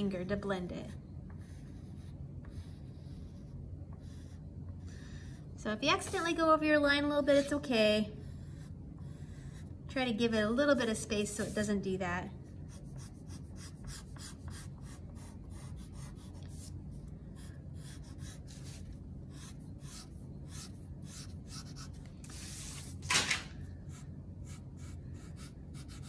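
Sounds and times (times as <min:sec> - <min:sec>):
chalk pastel scraping paper: 0:11.1 - 0:11.9, 0:12.7 - 0:23.0.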